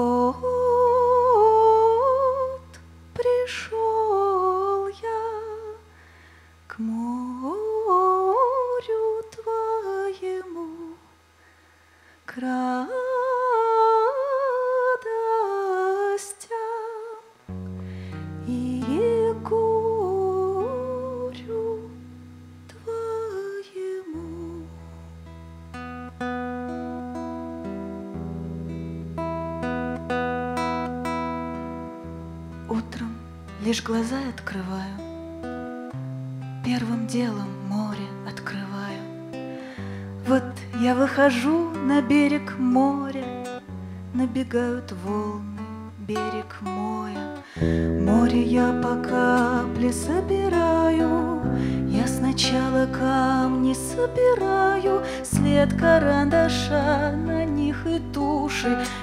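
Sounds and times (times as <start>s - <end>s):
woman's wordless vocal melody: 0.0s - 5.9s, 6.7s - 11.3s, 12.2s - 25.0s, 29.6s - 59.0s
picked acoustic guitar: 0.0s - 10.9s, 17.4s - 59.0s
held bass guitar notes: 47.6s - 59.0s.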